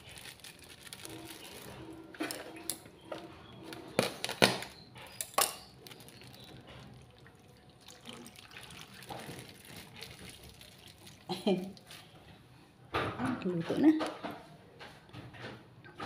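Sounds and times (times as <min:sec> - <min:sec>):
liquid pouring and splashing: 0:00.0 - 0:02.9, 0:05.7 - 0:12.2.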